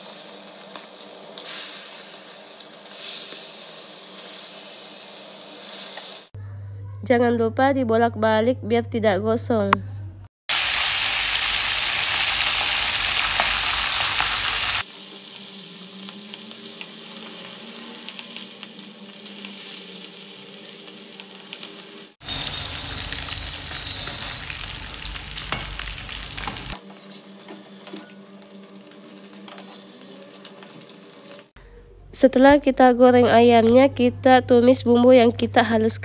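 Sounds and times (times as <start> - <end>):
chicken sizzling in hot oil: 0.0 - 6.4, 10.5 - 31.6.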